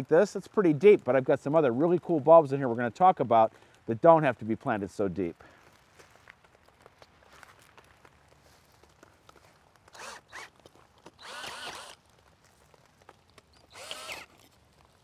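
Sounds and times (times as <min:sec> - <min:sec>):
cordless drill auger in soil: 0:09.4 - 0:15.0.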